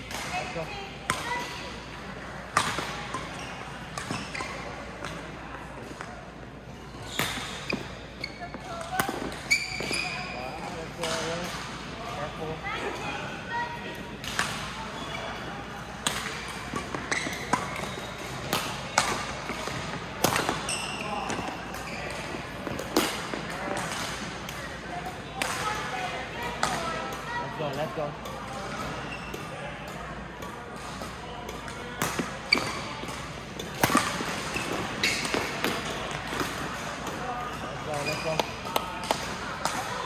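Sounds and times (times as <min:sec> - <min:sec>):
shoes squeaking on court floor: 0:03.1 - 0:05.2, 0:06.7 - 0:11.4, 0:14.9 - 0:15.5, 0:16.5 - 0:23.0, 0:28.6 - 0:29.6, 0:31.8 - 0:39.2
rackets hitting shuttlecock: 0:28.2 - 0:40.0.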